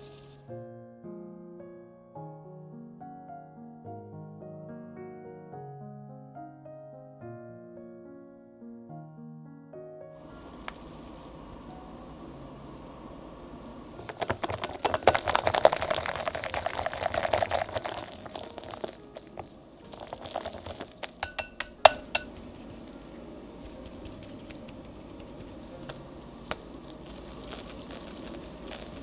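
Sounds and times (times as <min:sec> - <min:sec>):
whisk beating cream in glass bowl: 0:14.1 - 0:22.3
whisk tapping bowl: 0:20.0 - 0:22.4
ringing clink: 0:21.2 - 0:22.3.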